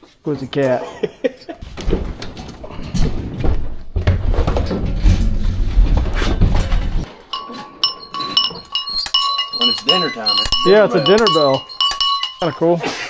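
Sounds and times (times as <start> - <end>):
hand truck rumbling and rattling: 1.6 - 12.8
metal dinner bell ringing: 6.6 - 12.8.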